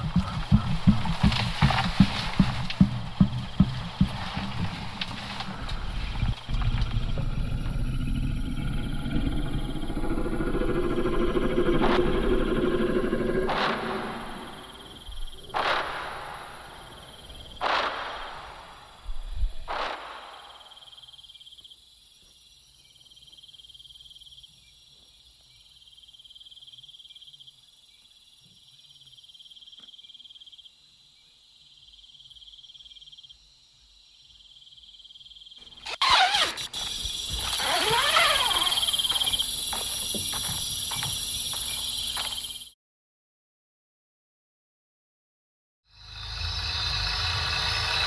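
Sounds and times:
crickets chirping: 0.0s - 42.8s, 45.9s - 48.0s
loud animal roar: 5.4s - 14.9s.

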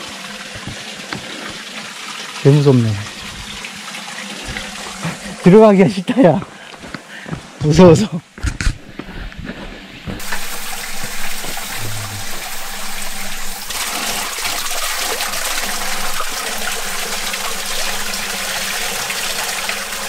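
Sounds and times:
spring water gushing onto stones: 0.0s - 5.6s, 10.2s - 20.0s.

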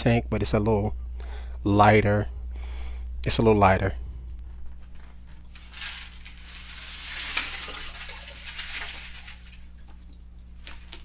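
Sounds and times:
gravel pouring into water: 5.6s - 9.8s.

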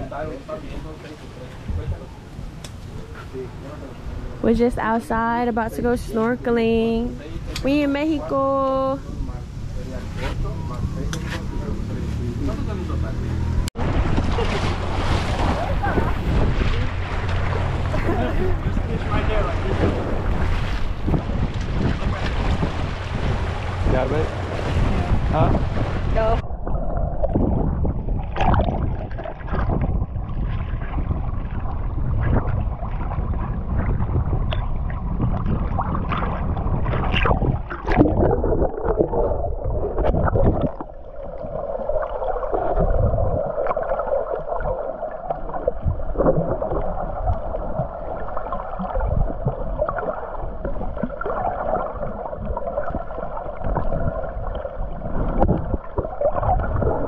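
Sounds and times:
dull underwater hum: 0.0s - 57.0s
muffled underwater water sloshing: 13.8s - 57.0s
bubbly bursts: 26.2s - 57.0s.

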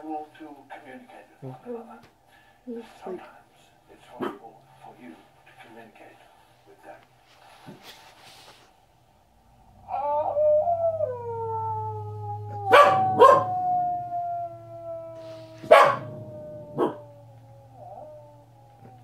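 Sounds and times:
wolves howling: 9.7s - 19.0s
dog howling: 9.8s - 19.0s
dog barking: 12.7s - 13.5s, 15.6s - 16.1s, 16.8s - 17.0s.

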